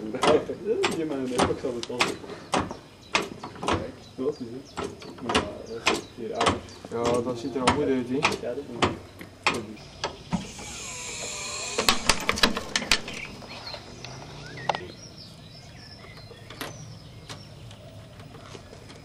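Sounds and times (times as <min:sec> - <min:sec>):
hydraulic jack hiss: 0:10.2 - 0:12.6.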